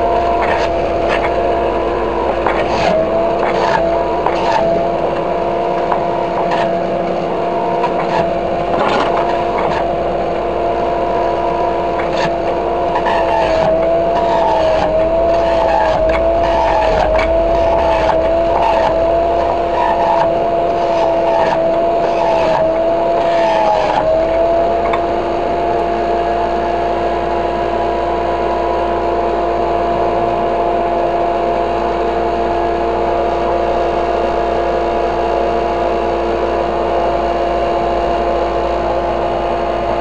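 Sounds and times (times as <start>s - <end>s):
vegetables crunching: 0.0s - 6.9s, 7.6s - 26.0s
juicer motor whine: 0.0s - 40.0s.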